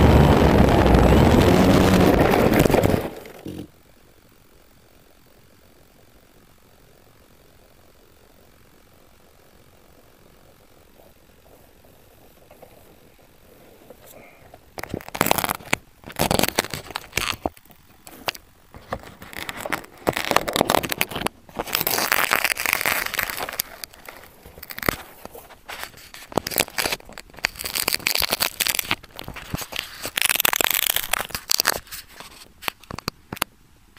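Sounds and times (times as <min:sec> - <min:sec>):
grass brushing camera microphone: 0:22.8 - 0:27.0.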